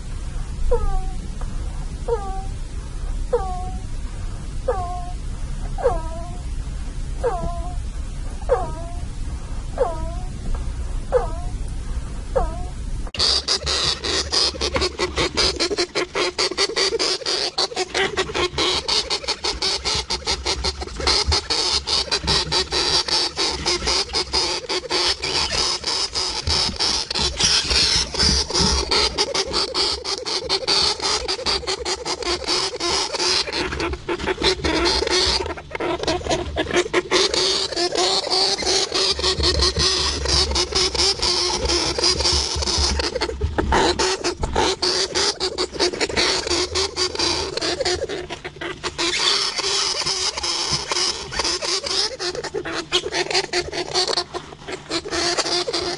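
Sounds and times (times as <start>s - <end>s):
hamster clicking and chattering: 13.2s - 55.9s.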